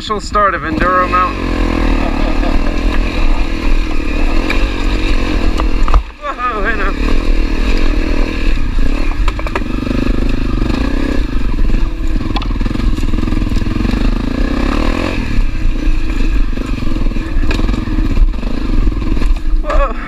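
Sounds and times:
motorcycle engine under load: 0:00.5 - 0:20.0
knocks and clatter over rocks: 0:04.2 - 0:06.2, 0:09.0 - 0:10.4, 0:12.2 - 0:13.8.

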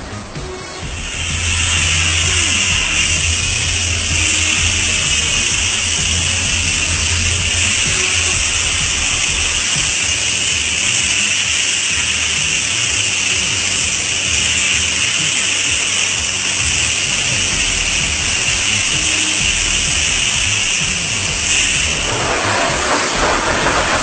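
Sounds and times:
low rumble: 0:00.0 - 0:11.3, 0:16.7 - 0:24.0
high-pressure water spray hissing: 0:00.0 - 0:24.0.

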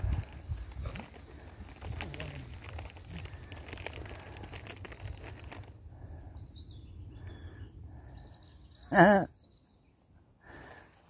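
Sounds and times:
wind rumble on microphone: 0:00.0 - 0:08.9.

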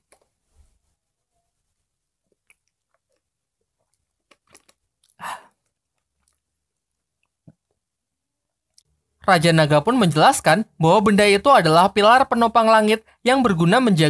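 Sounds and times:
mouth clicks and smacks: 0:02.2 - 0:07.9.

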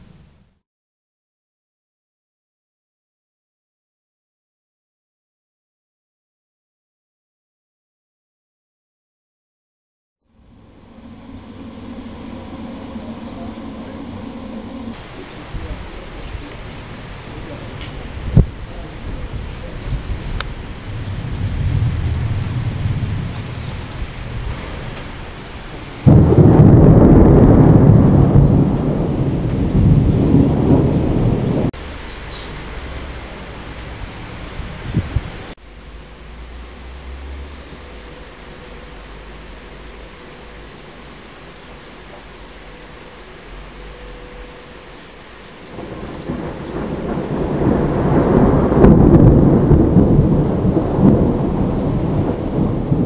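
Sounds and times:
thunder clap and rumble: 0:10.4 - 0:32.0, 0:32.6 - 0:35.6, 0:45.6 - 0:53.0.

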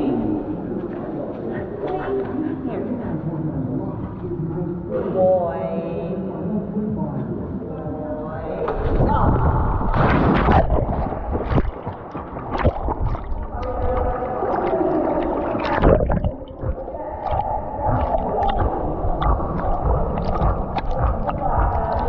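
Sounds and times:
water sloshing and gurgling: 0:08.6 - 0:22.0
splashes from swimming strokes: 0:09.9 - 0:22.0.

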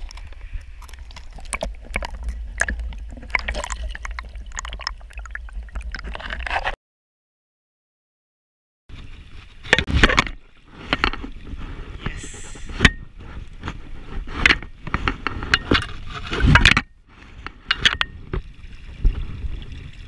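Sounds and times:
water splashing against camera: 0:00.0 - 0:06.8, 0:08.9 - 0:19.9
knocks and scrapes: 0:06.0 - 0:06.8, 0:08.9 - 0:19.6.

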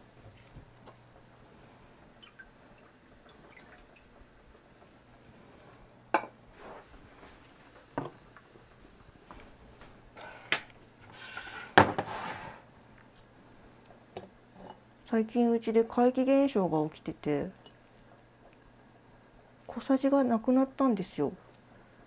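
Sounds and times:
dishes clinking and knocking: 0:11.7 - 0:12.1.

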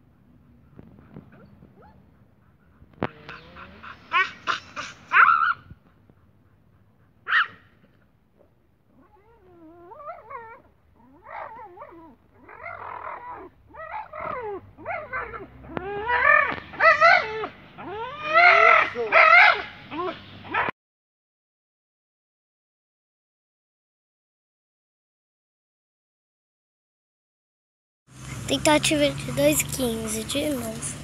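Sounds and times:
dog whining and crying: 0:03.0 - 0:05.7, 0:09.0 - 0:20.7.

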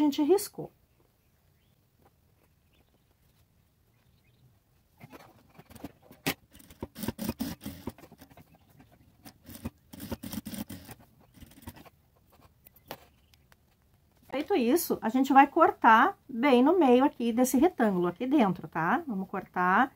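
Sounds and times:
sewing machine stitching: 0:06.5 - 0:08.4, 0:09.2 - 0:11.8.

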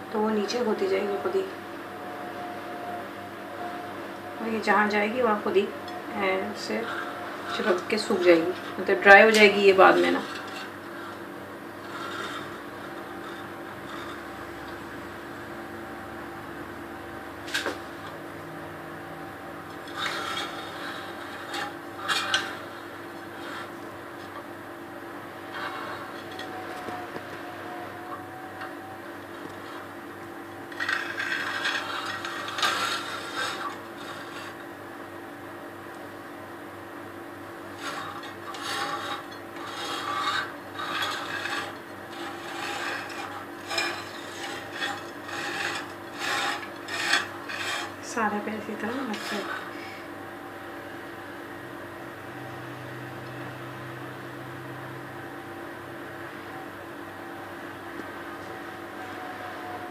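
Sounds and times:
utensil scraping a dish: 0:03.6 - 0:24.5, 0:25.2 - 0:34.8, 0:37.7 - 0:50.2.

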